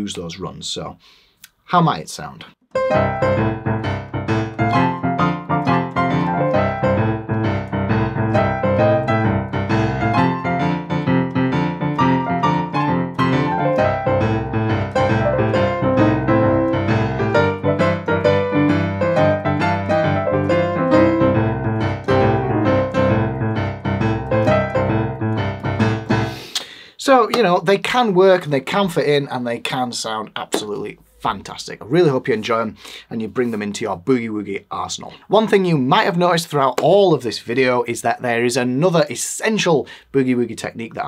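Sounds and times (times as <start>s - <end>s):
boogie-woogie piano: 2.7s - 26.6s.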